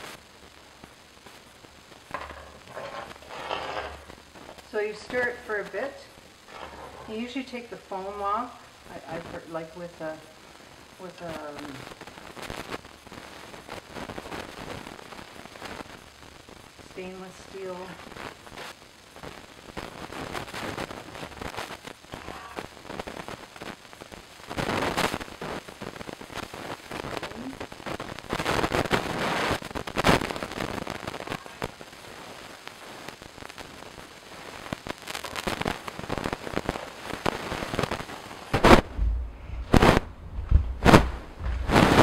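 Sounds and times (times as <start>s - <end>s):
metal spoon scraping pot: 2.2s - 4.1s.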